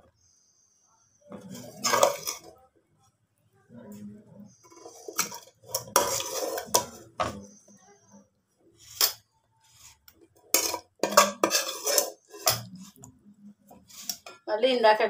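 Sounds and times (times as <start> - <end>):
metal spoon scraping metal pot: 1.3 - 2.6, 4.5 - 7.8, 8.8 - 13.1, 13.7 - 14.4.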